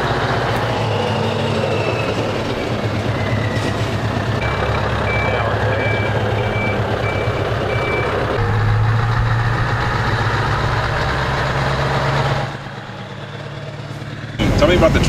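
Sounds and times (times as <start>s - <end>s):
truck diesel engine running: 0.0s - 15.0s
reverse alarm beeping: 4.4s - 9.6s.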